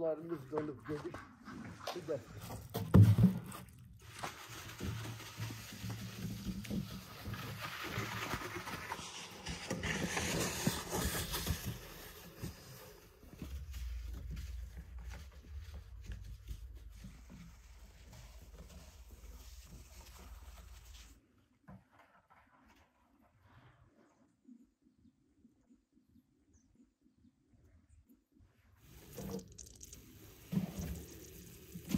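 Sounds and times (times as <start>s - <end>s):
sled scraping over snow: 4.0s - 15.8s.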